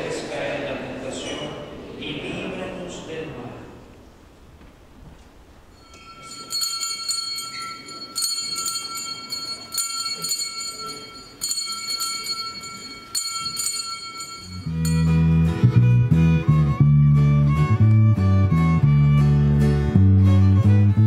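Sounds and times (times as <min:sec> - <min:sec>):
small bells ringing: 0:05.7 - 0:15.8
string band playing: 0:14.6 - 0:21.0.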